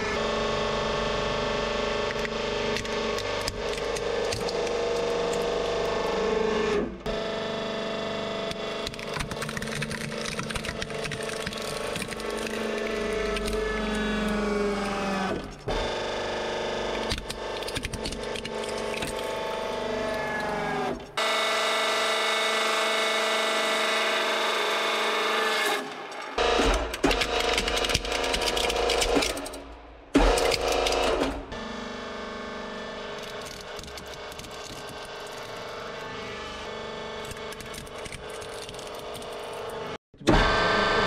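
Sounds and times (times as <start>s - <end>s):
plastic cracking and crunching: 8.9s - 15.7s, 17.0s - 19.5s, 33.2s - 35.7s.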